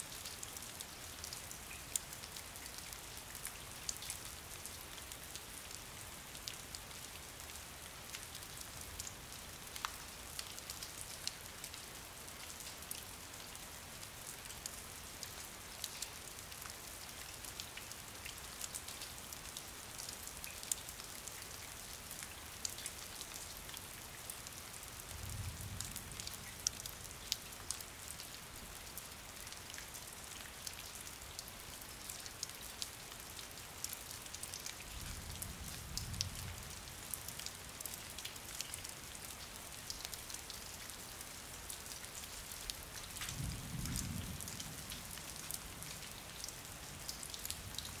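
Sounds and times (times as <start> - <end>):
rain falling: 0.0 - 48.0
raindrops ticking on hard surface: 7.4 - 11.8, 15.2 - 48.0.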